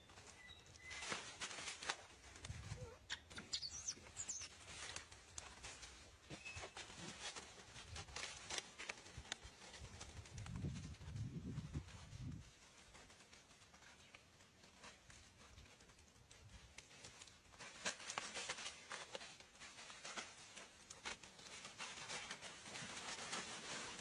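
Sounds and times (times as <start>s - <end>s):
faint rustling and crackling: 0.0s - 24.0s.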